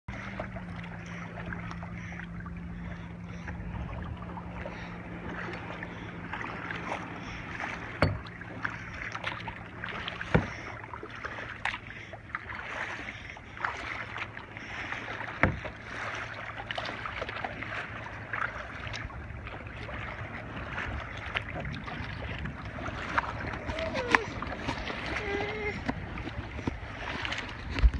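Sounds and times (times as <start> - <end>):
water lapping against kayak hull: 0.1 - 27.9
knocks on hull: 8.0 - 8.3, 10.2 - 10.6, 15.4 - 15.7.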